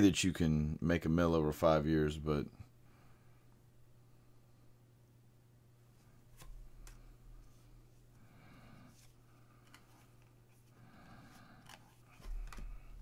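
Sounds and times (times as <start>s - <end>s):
steady low hum: 0.0s - 13.0s
trading cards sliding and rustling: 6.0s - 8.1s, 8.8s - 13.0s.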